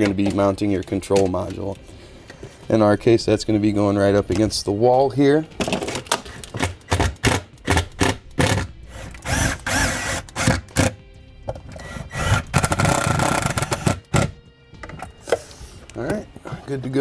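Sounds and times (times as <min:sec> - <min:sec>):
power drill driving screws: 0:07.6 - 0:11.0, 0:11.8 - 0:14.3.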